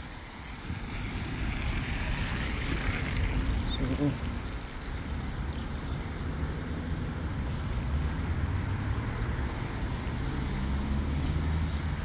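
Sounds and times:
tyre hiss on wet road: 0.0 - 3.4
vehicle engine hum: 0.0 - 12.0.

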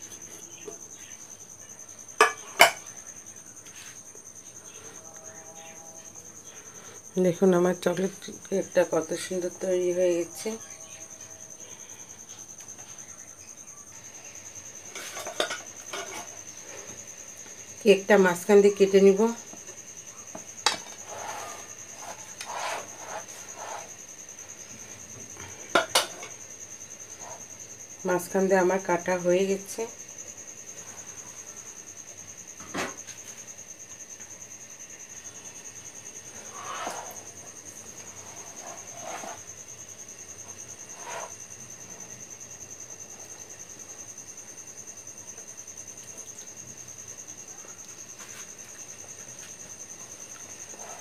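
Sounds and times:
cricket chirping: 0.0 - 51.0
knife scraping through cake: 20.9 - 24.0, 36.3 - 37.2.

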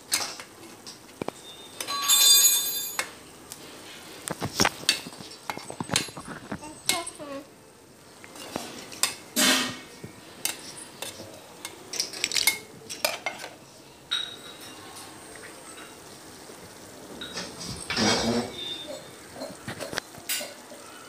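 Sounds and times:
spoon knocking and scraping pot: 4.3 - 7.2
soup boiling: 15.2 - 21.0.

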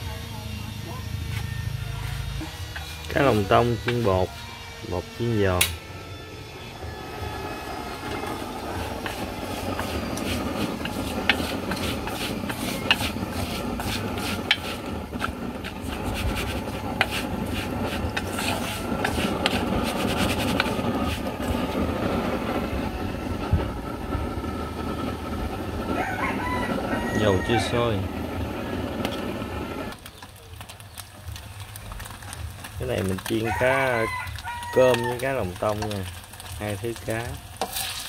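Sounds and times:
chopsticks scraping steel bowl: 1.3 - 4.4, 8.0 - 21.6, 37.6 - 38.0
fish tossed in flour: 30.0 - 38.0.

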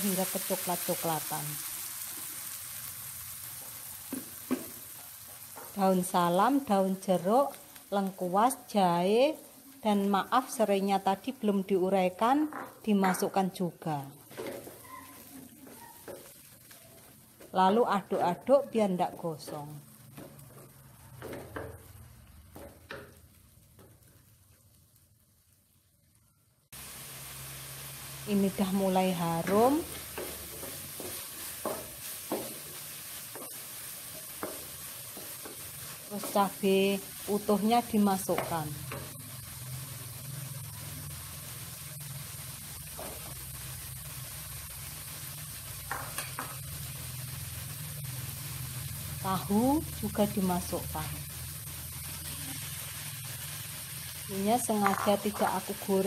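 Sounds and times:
paste sauteing in oil: 0.0 - 56.0
wooden spatula scraping wok: 14.2 - 24.2, 28.4 - 40.6, 54.6 - 55.8.

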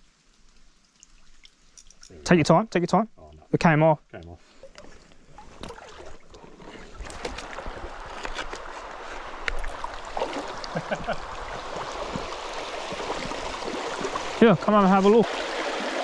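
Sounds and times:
small water splashes and clicks: 0.0 - 2.4, 4.1 - 15.3
creek water rushing over stones: 4.8 - 16.0.

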